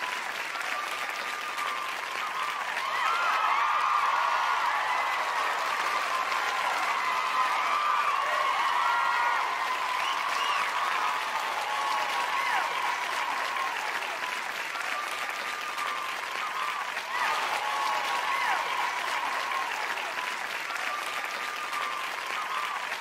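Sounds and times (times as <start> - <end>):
crowd applauding and cheering: 0.0 - 23.0
high whistles: 9.0 - 19.6.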